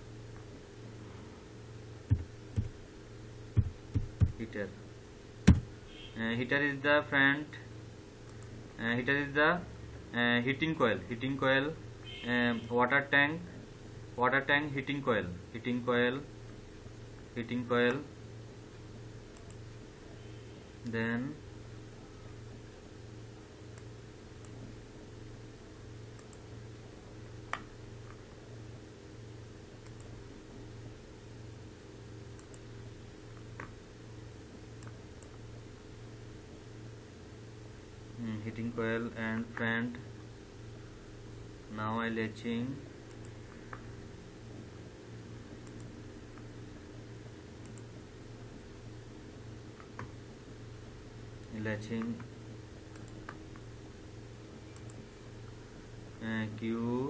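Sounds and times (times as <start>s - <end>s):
low electrical hum: 0.0s - 57.0s
computer mouse clicks: 19.3s - 19.6s, 26.2s - 26.4s, 29.8s - 30.2s, 32.4s - 32.7s, 43.1s - 43.8s, 45.6s - 45.9s, 47.6s - 47.9s, 52.9s - 53.7s, 54.7s - 55.0s.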